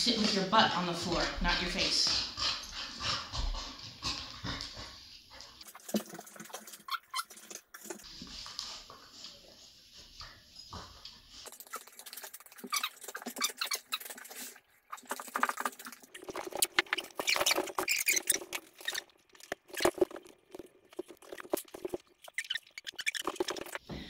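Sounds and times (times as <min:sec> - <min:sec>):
squeaky high-pitched chattering: 0:22.3 - 0:23.8.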